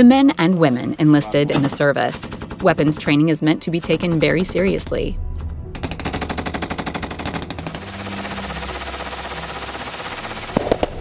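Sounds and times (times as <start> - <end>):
machine gun firing bursts: 1.9 - 4.8, 5.8 - 11.0.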